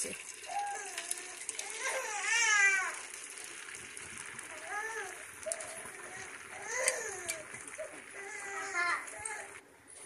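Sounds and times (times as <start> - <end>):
batter sizzling in pan: 0.0 - 9.6
child's voice: 8.2 - 9.5.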